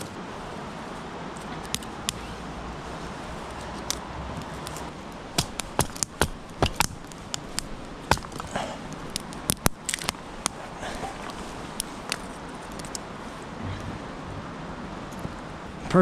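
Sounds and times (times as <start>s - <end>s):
firewood sticks clattering: 3.3s - 13.0s.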